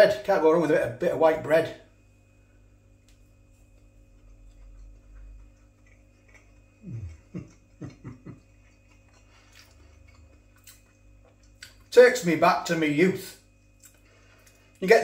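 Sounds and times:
man chewing: 0:02.6 - 0:11.9, 0:13.5 - 0:14.8
man humming mm: 0:06.8 - 0:08.4.

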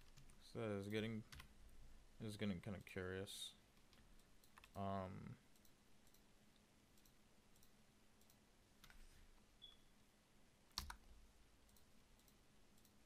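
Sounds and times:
computer mouse clicks: 0:03.8 - 0:04.8, 0:05.5 - 0:06.3, 0:07.0 - 0:09.8, 0:11.7 - 0:13.0.

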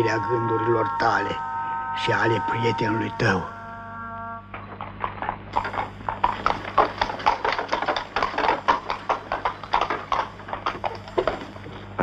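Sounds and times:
horse hooves clip-clopping: 0:04.5 - 0:12.0.

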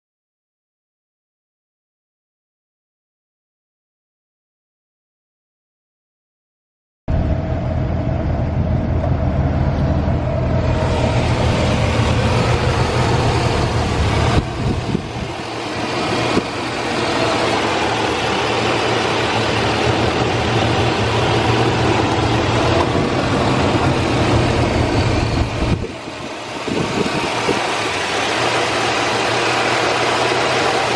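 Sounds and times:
engine idling: 0:07.1 - 0:30.9.

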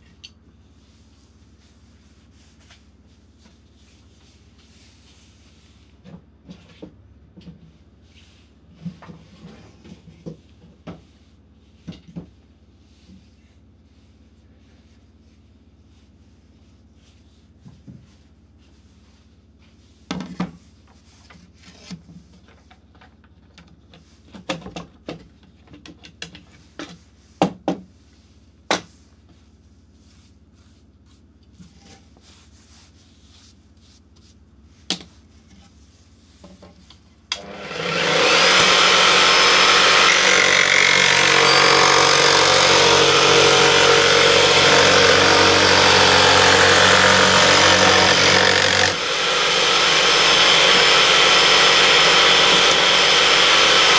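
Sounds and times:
jigsaw cutting wood: 0:37.4 - 0:53.9
wood being handled: 0:37.9 - 0:53.9.

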